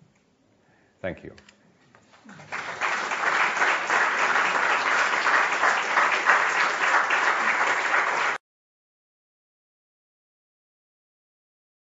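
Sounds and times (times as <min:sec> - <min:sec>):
audience applauding: 0:02.3 - 0:08.4.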